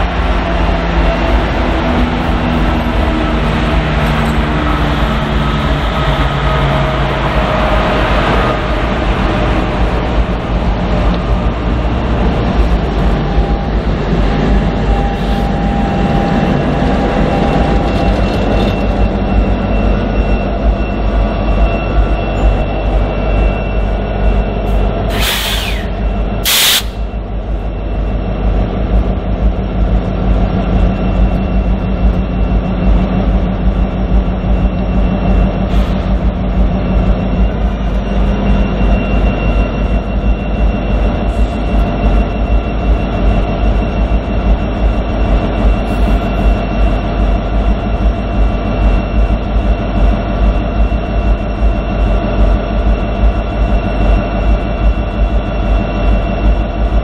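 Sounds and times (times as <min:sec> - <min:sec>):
wheel rumble on rails: 0:00.0 - 0:25.2
locomotive engine drone: 0:00.0 - 0:57.0
short hisses: 0:25.1 - 0:27.0.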